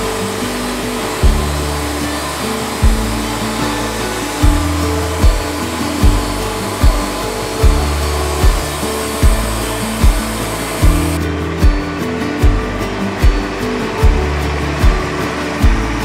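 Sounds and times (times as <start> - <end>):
band sawmill hissing: 0.0 - 11.2
background music with steady beat: 0.0 - 16.0.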